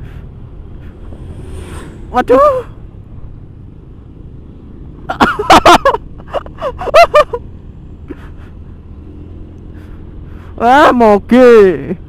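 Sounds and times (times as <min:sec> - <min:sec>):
motor scooter engine rumble: 0:00.0 - 0:11.0
person calling out: 0:02.2 - 0:02.8.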